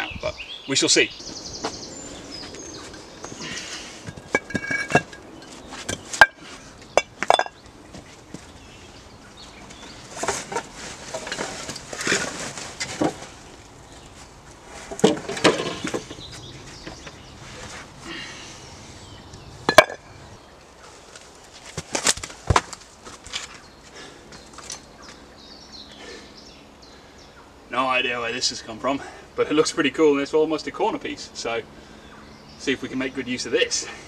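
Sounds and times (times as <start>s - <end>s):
stone slabs clacking together: 4.1s - 5.2s
scuffing and shuffling: 20.8s - 25.2s.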